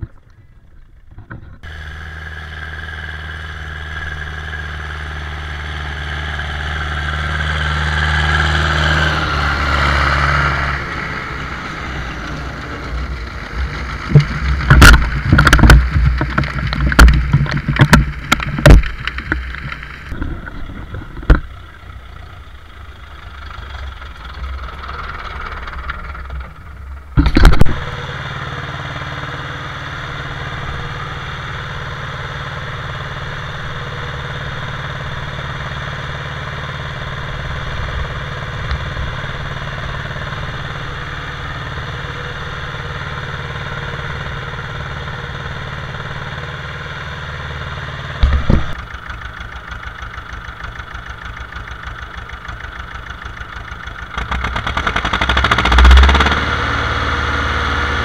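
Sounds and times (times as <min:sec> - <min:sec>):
tractor diesel engine: 0:00.0 - 0:58.0
loud thump: 0:48.2 - 0:48.8.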